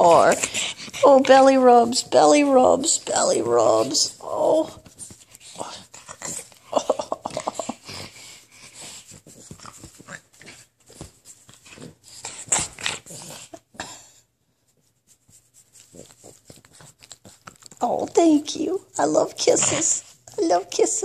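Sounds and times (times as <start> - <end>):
dog breathing hard: 0.0 - 1.4, 7.6 - 14.1
small dog playful noises: 3.7 - 13.8.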